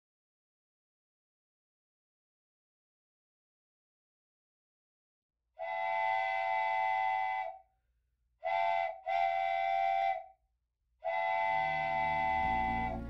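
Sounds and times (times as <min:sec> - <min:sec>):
multi-chime train whistle blasts: 0:05.6 - 0:07.5, 0:11.0 - 0:13.0.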